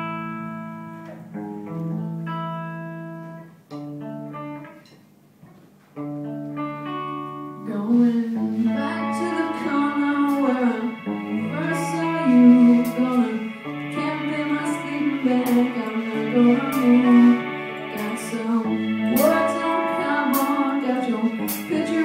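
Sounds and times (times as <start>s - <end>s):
person singing: 7.5s - 22.0s
live band playing chords: 8.5s - 22.0s.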